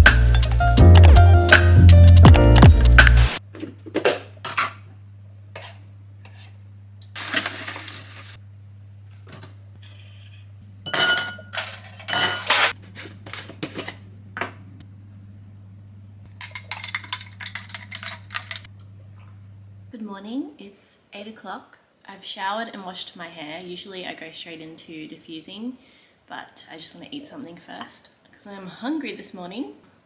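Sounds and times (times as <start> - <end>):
steady low hum: 8.4 - 20.0
drinking glass clinking: 10.9 - 12.5, 16.4 - 17.7.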